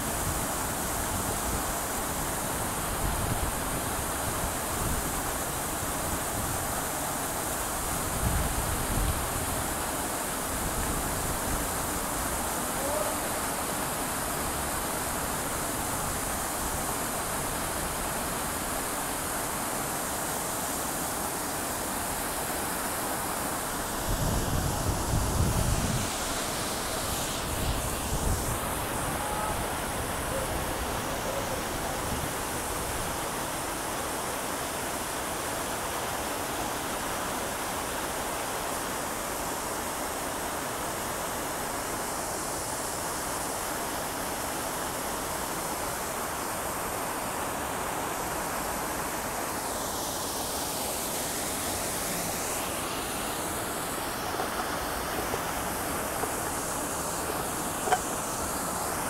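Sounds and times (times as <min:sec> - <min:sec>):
fountain water splashing: 0:00.0 - 0:59.0.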